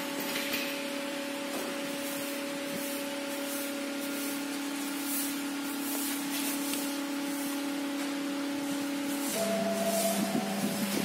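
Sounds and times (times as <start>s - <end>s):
cnc router spindle whine: 8.3s - 11.0s.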